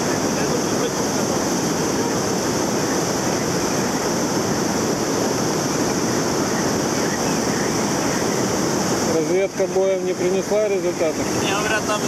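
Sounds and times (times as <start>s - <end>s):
river rapids roaring: 0.0s - 12.0s.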